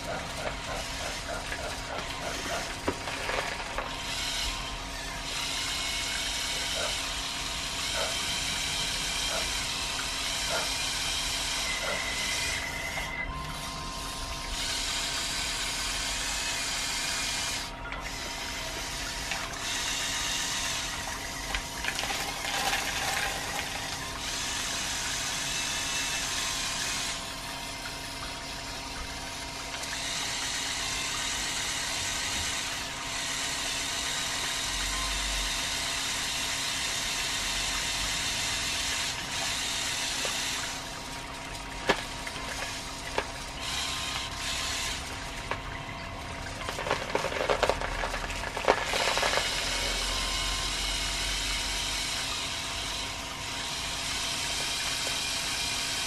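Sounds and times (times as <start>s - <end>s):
electric motors whirring: 0.0s - 56.0s
beans rattling and clattering: 1.4s - 4.0s, 21.8s - 24.0s, 46.6s - 50.0s.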